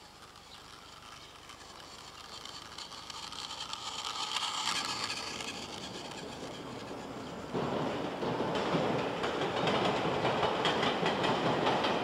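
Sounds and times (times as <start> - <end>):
toy train whirring on track: 0.0 - 8.2.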